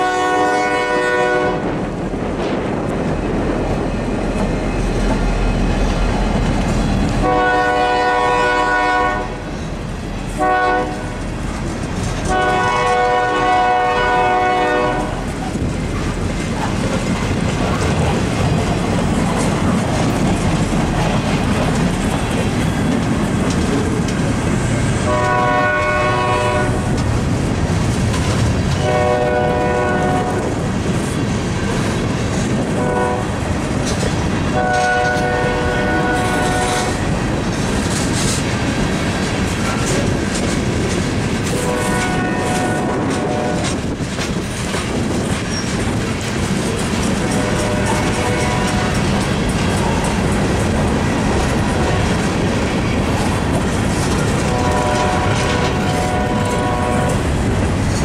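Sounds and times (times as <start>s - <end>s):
train horn blasts: 0.0s - 1.8s, 7.2s - 9.5s, 10.3s - 11.2s, 12.2s - 15.3s, 25.0s - 27.0s, 28.8s - 30.5s, 32.8s - 33.4s, 34.5s - 37.1s, 41.5s - 43.8s, 47.2s - 49.1s, 54.4s - 57.3s
freight train rolling by: 0.0s - 58.0s
wheel clatter over rail joints: 9.4s - 13.2s, 14.9s - 28.9s, 30.1s - 58.0s.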